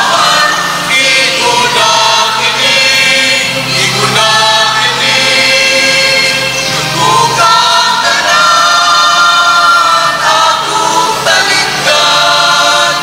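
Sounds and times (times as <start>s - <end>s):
choir singing a hymn: 0.0s - 13.0s.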